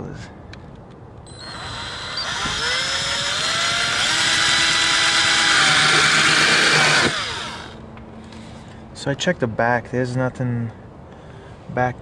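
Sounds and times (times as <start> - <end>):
cordless drill motor whine: 1.3 - 7.8.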